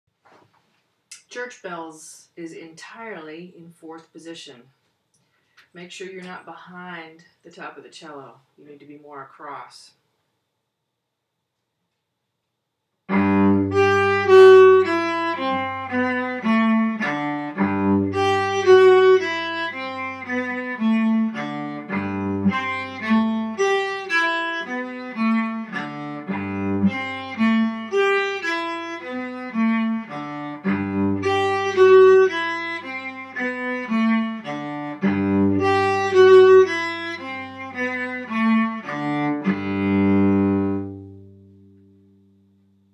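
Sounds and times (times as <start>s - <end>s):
solo cello melody: 13.1s - 42.5s.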